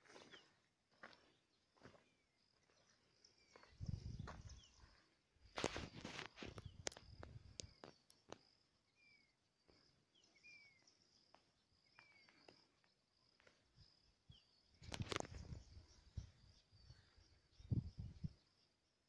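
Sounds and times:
high insect trill: 0:03.2 - 0:19.0
bird chirps: 0:06.5 - 0:18.8.

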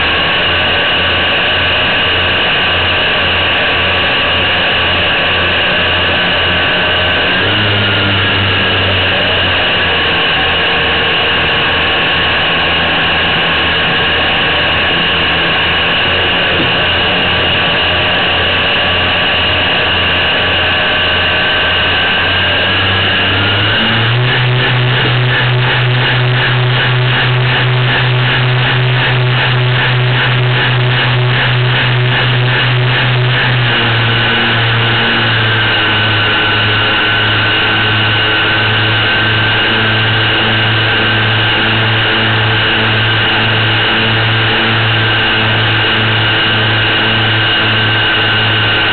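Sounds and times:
model aircraft motors running: 0:00.0 - 0:48.9.

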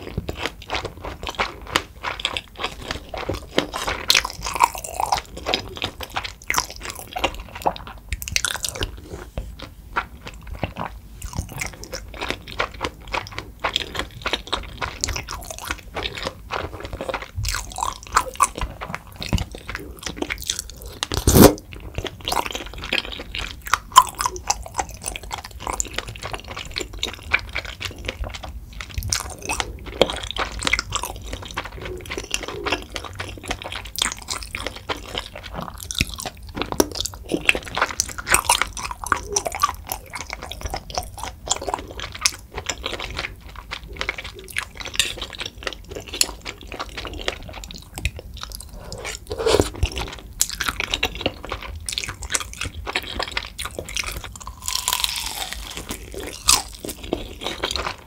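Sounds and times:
wet chewing and mouth smacks: 0:00.0 - 0:58.0
crunchy bites: 0:29.0 - 0:58.0
broth sipped from a spoon: 0:48.6 - 0:50.0.

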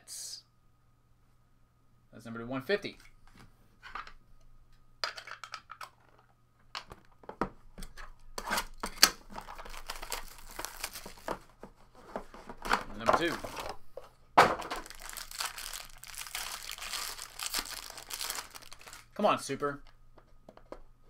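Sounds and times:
pack wrappers crinkling: 0:09.1 - 0:11.5, 0:14.6 - 0:19.3.

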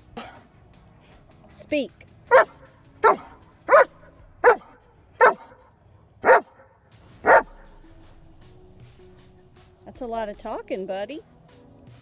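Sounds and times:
dog barking: 0:02.3 - 0:07.6.

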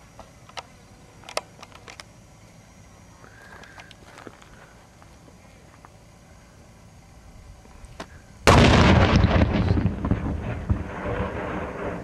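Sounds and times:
explosion blast with rumble: 0:08.4 - 0:12.0.

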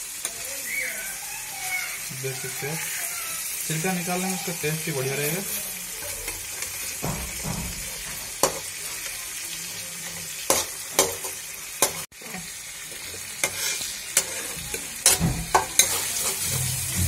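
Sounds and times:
vegetables sizzling in hot oil: 0:00.0 - 0:17.0
spatula scraping metal pan: 0:13.4 - 0:17.0.

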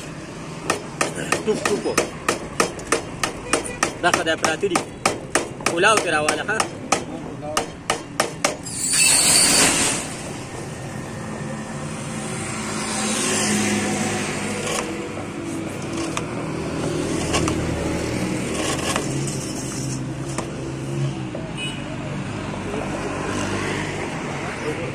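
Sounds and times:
road vehicles passing: 0:00.0 - 0:24.9
file scraping rubber: 0:18.4 - 0:20.4.

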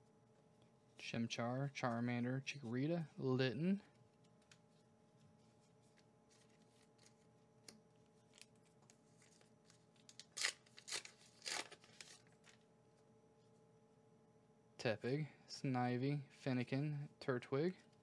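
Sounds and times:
plastic crinkling: 0:05.7 - 0:12.7
plastic card pack clicks and rustles: 0:06.3 - 0:12.6.

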